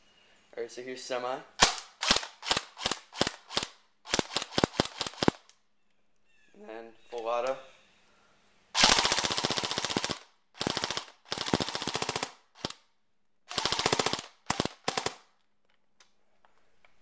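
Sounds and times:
airsoft rifle firing full auto: 1.6 - 5.4, 8.8 - 12.8, 13.5 - 15.3.

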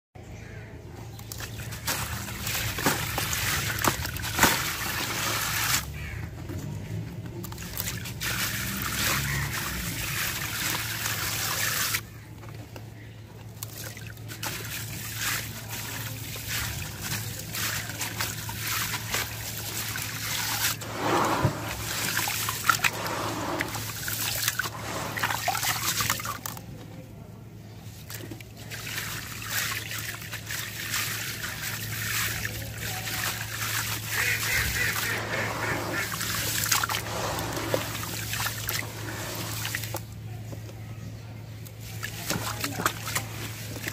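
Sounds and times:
grains trickling into water: 1.1 - 6.2, 7.4 - 12.1, 13.6 - 26.6, 27.9 - 40.1
wet grit stirred by hand: 1.2 - 6.2, 7.4 - 12.2, 13.5 - 26.6, 27.7 - 40.1, 41.6 - 43.9.

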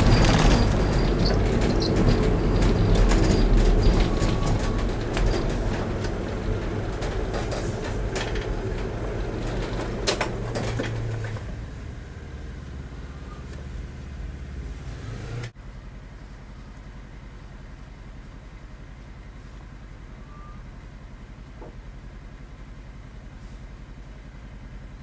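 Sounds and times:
clicks and knocks: 0.0 - 11.5
car engine running: 0.0 - 19.3.

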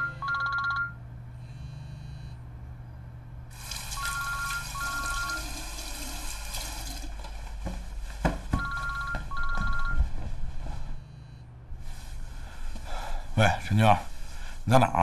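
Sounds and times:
two-tone electronic telephone ring: 0.0 - 1.0, 4.0 - 5.6, 8.6 - 10.0.

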